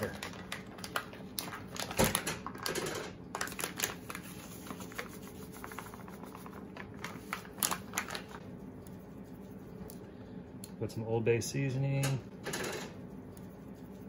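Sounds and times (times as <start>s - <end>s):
bag crinkling and rustling: 3.3s - 8.4s.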